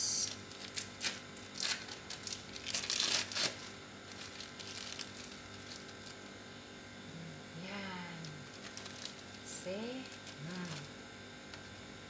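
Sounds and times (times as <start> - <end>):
plastic wrapper crinkling: 0.3 - 6.3, 8.2 - 10.9.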